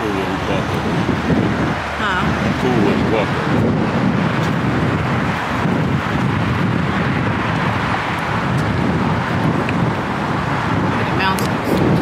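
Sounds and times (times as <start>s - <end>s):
highway traffic: 0.0s - 12.0s
wind buffeting microphone: 0.0s - 12.0s.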